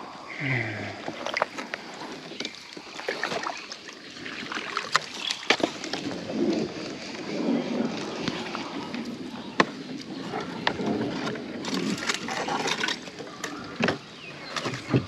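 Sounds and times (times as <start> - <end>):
faint water noise: 0.0 - 15.0
knocks and clicks from kayak gear: 1.0 - 3.5, 4.8 - 7.2, 7.9 - 15.0.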